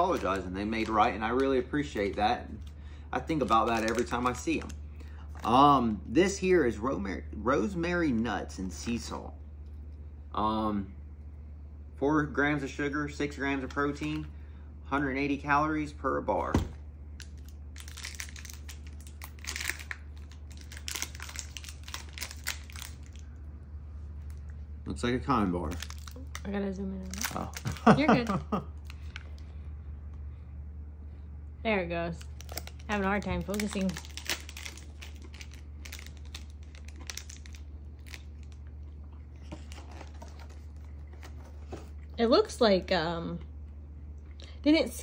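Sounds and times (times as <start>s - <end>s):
plastic wrapper crinkling: 0.0s - 4.8s, 17.2s - 23.2s, 25.6s - 29.4s, 32.2s - 38.7s
steady low hum: 0.0s - 45.0s.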